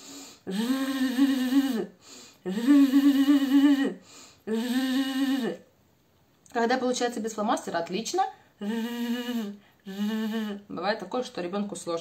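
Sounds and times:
breath: 0:00.0 - 0:00.5, 0:02.0 - 0:02.4, 0:04.0 - 0:04.4
woman making buzzing voice: 0:00.4 - 0:05.7, 0:08.6 - 0:10.8.

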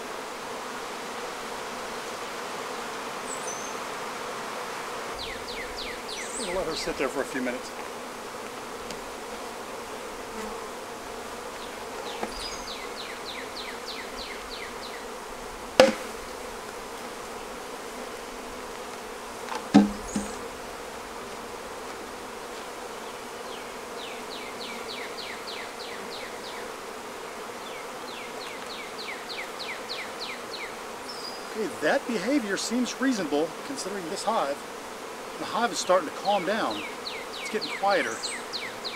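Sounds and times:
bees buzzing: 0:00.0 - 0:38.9
sharp knocks: 0:15.8 - 0:16.2, 0:19.6 - 0:20.4
bird singing falling notes: 0:19.7 - 0:20.5.

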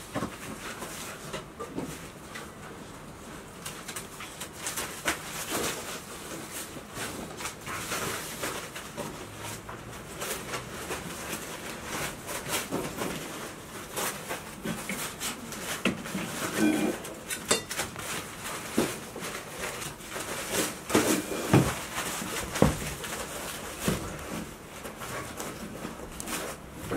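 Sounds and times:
shredded paper rustling: 0:03.3 - 0:26.9.

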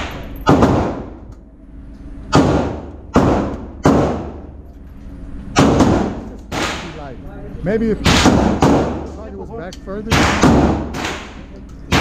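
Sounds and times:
indoor gunshots with echo: 0:00.0 - 0:01.3, 0:02.2 - 0:04.5, 0:05.5 - 0:07.0, 0:08.0 - 0:09.2, 0:10.1 - 0:12.0.

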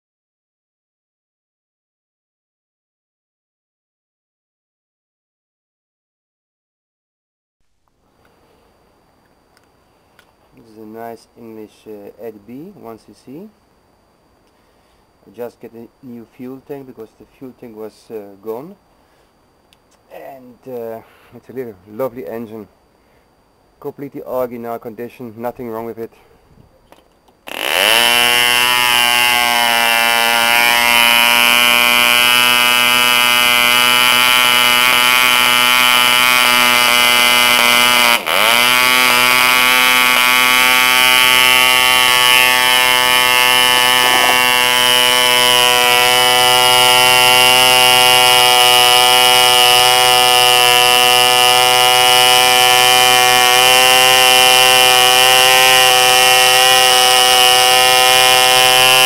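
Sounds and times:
model engine high-pitched buzz: 0:27.4 - 0:59.0.

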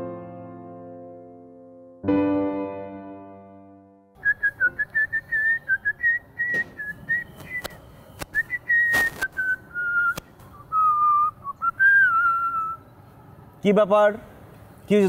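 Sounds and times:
person whistling a tune: 0:04.2 - 0:12.8
sharp clicks: 0:06.5 - 0:10.6.

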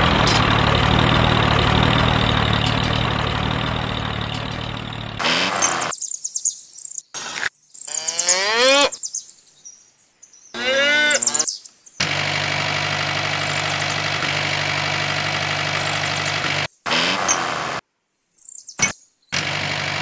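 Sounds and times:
miniature tractor motor humming: 0:00.0 - 0:05.9, 0:12.0 - 0:17.8, 0:19.4 - 0:20.0
short rising whines: 0:00.0 - 0:05.9.

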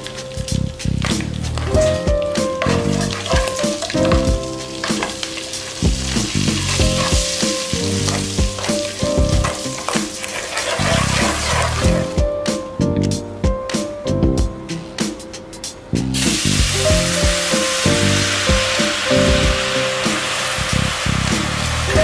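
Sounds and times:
background music with steady beat: 0:00.0 - 0:10.5, 0:11.8 - 0:22.0
butter sizzling in a pot: 0:00.0 - 0:12.1, 0:16.2 - 0:22.0
spatula stirring: 0:01.0 - 0:12.1.

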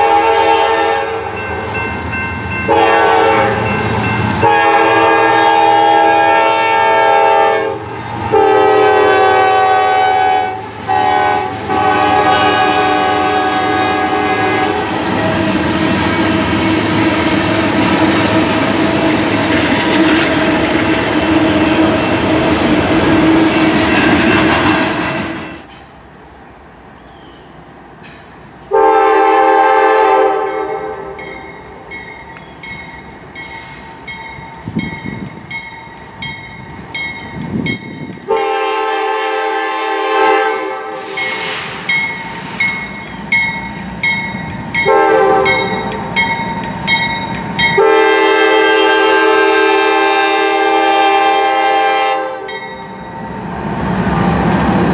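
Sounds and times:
locomotive air horn chord: 0:00.0 - 0:01.7, 0:02.7 - 0:15.5, 0:28.7 - 0:31.3, 0:38.3 - 0:41.9, 0:44.8 - 0:45.9, 0:47.8 - 0:52.6
train running past on rails: 0:00.0 - 0:54.9.

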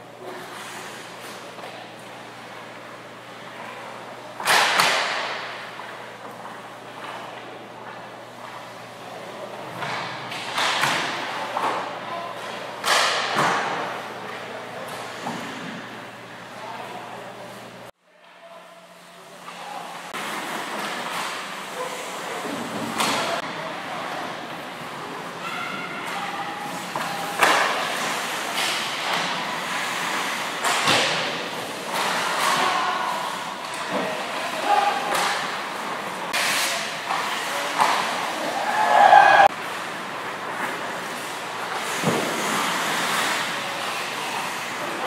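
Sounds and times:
skates scraping ice: 0:00.2 - 0:01.6, 0:26.7 - 0:45.0
pucks hitting goalie pads: 0:04.4 - 0:06.4, 0:09.8 - 0:14.0, 0:26.0 - 0:39.8.

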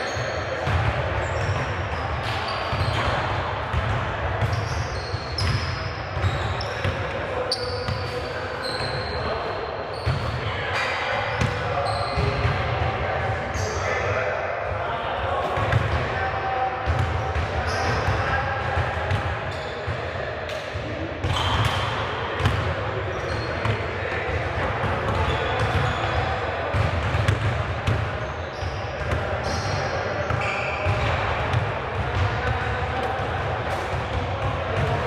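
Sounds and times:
sneaker squeaks: 0:00.0 - 0:12.5, 0:13.5 - 0:14.0, 0:17.6 - 0:18.3, 0:19.5 - 0:20.0, 0:21.2 - 0:23.8, 0:25.1 - 0:27.4, 0:28.2 - 0:31.3
players chattering: 0:00.0 - 0:35.0.

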